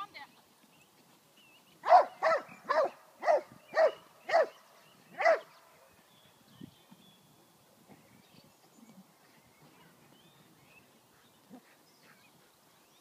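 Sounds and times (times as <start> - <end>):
dog barking: 1.8 - 4.5, 5.2 - 5.5.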